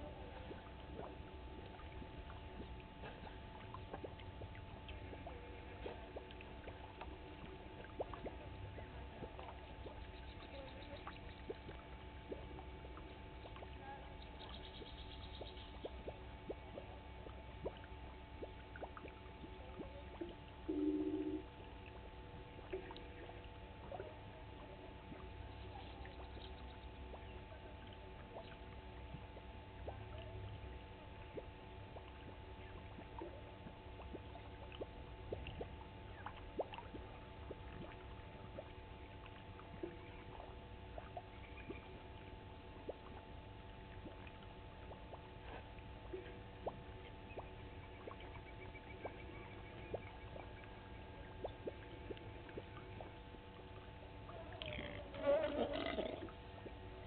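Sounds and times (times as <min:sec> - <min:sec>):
steady low hum: 0:00.0 - 0:57.0
faint high trill: 0:20.7 - 0:21.5
soft clicks and ticks: 0:49.0 - 0:53.1.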